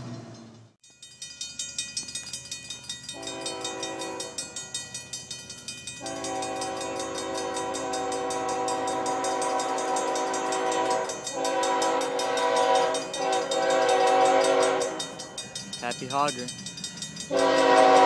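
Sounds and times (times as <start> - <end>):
bell dinging rapidly: 0.8 - 17.4
locomotive horn blasts: 3.2 - 4.4, 6.0 - 15.2, 17.3 - 18.0.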